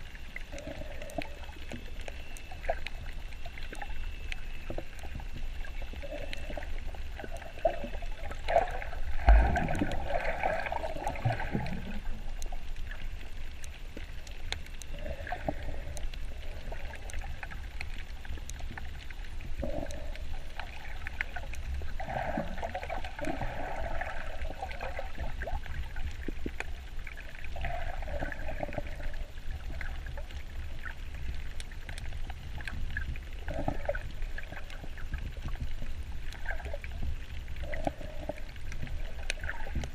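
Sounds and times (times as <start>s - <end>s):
underwater gurgling and bubbling: 0.0s - 39.9s
low rumble: 8.9s - 13.9s.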